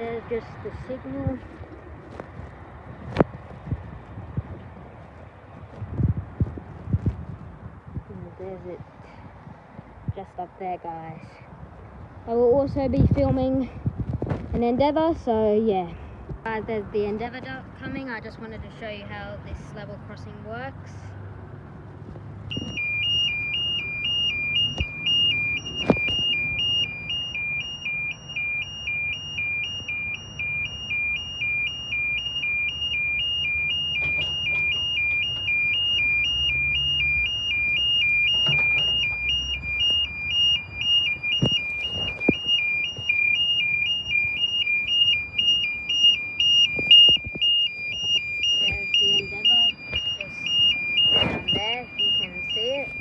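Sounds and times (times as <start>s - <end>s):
level crossing two-tone alarm: 22.5s - 53.0s.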